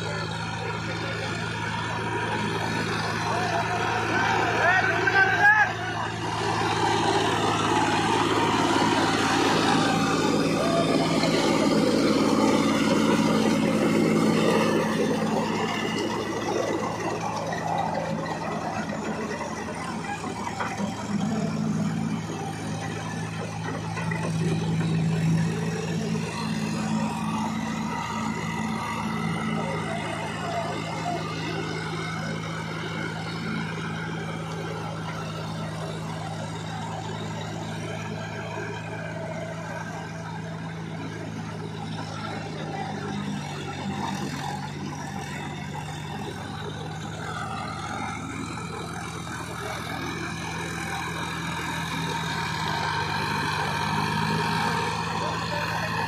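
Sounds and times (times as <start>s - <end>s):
tractor diesel engines running: 0.0s - 56.0s.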